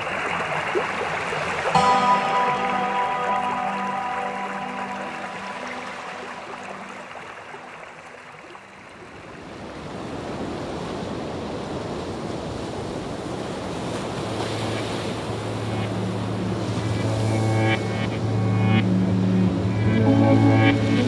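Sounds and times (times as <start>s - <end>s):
soft synth chord: 1.7s - 8.6s, 14.2s - 21.0s
low drone note: 1.8s - 7.7s, 14.7s - 21.0s.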